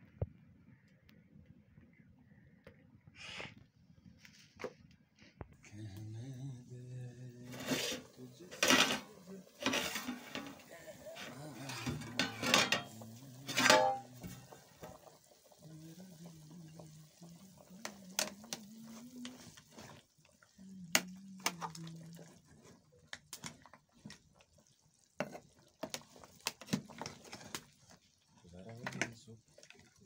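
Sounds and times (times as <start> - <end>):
metal clanking on cooking pot: 8.5 - 15.0.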